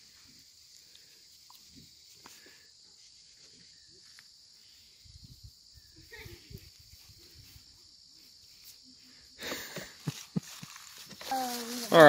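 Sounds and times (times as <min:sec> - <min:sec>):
high-pitched insect drone: 0:03.1 - 0:12.0.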